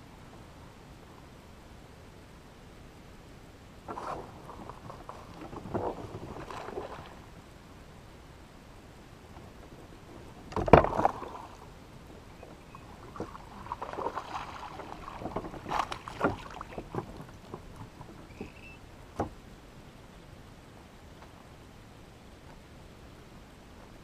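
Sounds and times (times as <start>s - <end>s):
knocks and rattles in kayak: 3.8s - 7.4s, 9.3s - 19.5s
water splash and thump: 3.9s - 7.3s, 9.3s - 11.7s, 13.0s - 18.5s.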